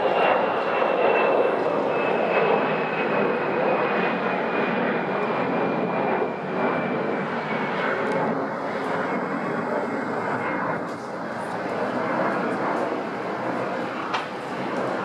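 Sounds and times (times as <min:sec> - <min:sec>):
jet engines roaring with high whine: 0:00.0 - 0:15.0.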